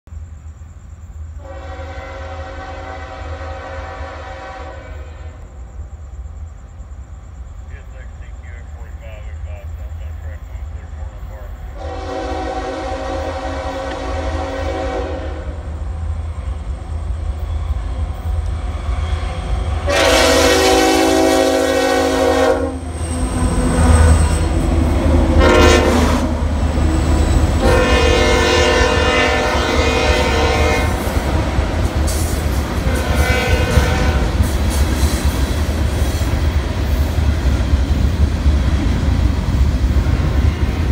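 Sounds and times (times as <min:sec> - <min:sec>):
freight train rumble and wheel clatter: 0:00.1 - 0:40.9
locomotive horn blasts: 0:01.4 - 0:05.4, 0:11.8 - 0:15.6, 0:19.9 - 0:22.8, 0:25.4 - 0:26.3, 0:27.6 - 0:31.0, 0:32.8 - 0:34.4.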